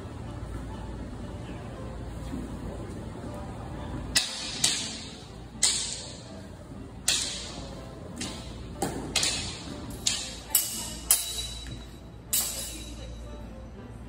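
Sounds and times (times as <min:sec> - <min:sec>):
wooden batons clacking together: 0:04.1 - 0:06.2, 0:07.0 - 0:12.8.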